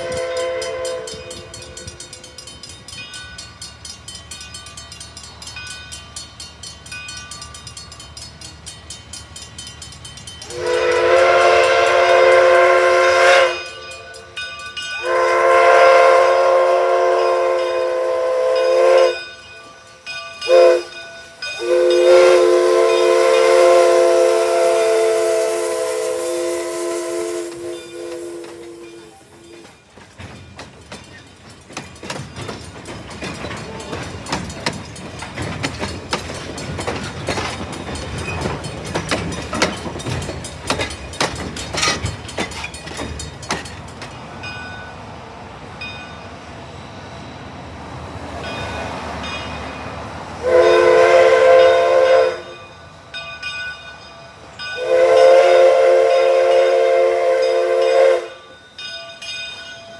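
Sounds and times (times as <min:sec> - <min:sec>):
steam whistle blasts: 0:00.0 - 0:01.6, 0:10.5 - 0:13.9, 0:15.0 - 0:19.3, 0:20.5 - 0:21.0, 0:21.6 - 0:29.6, 0:50.4 - 0:52.7, 0:54.8 - 0:58.6
wheels clicking over rail joints: 0:00.0 - 0:15.2, 0:27.2 - 0:44.9
train coaches rumbling past: 0:00.0 - 0:59.9.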